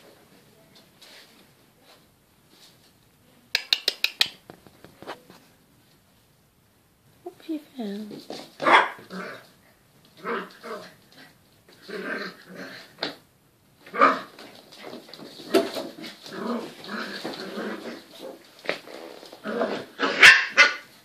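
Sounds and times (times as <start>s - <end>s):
puppies growling and yapping: 10.2s - 13.0s, 15.8s - 20.4s.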